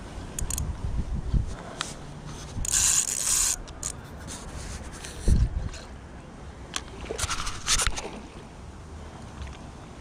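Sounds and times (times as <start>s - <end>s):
fabric rubbing on microphone: 1.8s - 5.5s, 7.2s - 8.0s.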